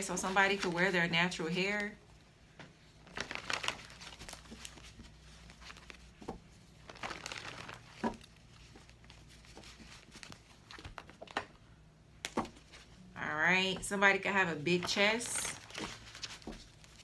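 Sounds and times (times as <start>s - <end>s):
cards shuffling: 3.1s - 11.6s, 12.2s - 13.0s, 14.7s - 17.0s.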